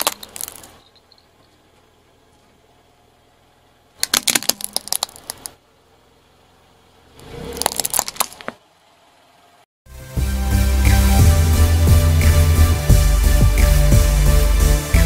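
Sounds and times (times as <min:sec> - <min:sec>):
plastic toy cracking under tyre: 0:00.0 - 0:00.8, 0:04.0 - 0:05.6, 0:07.6 - 0:08.6.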